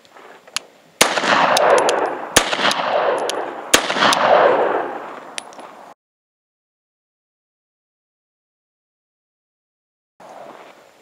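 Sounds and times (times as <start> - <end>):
pistol shots with echo: 1.0 - 5.5.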